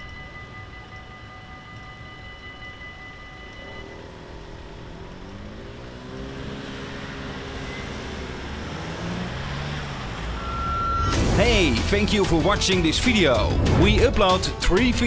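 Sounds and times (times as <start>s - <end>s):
level crossing warning bells: 0.0s - 15.0s
car engines accelerating: 3.2s - 15.0s.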